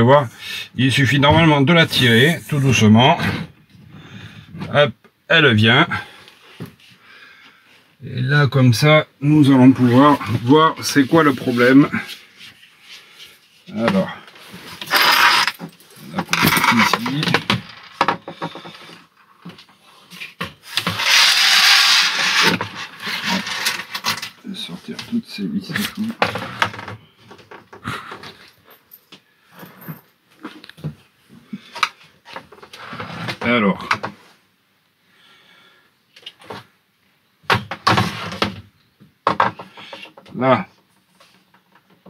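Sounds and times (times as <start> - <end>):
frame scraping on table: 14.6 - 19.0, 20.6 - 24.4
plastic clatter and knock: 15.5 - 19.7, 26.2 - 28.4, 37.5 - 40.3.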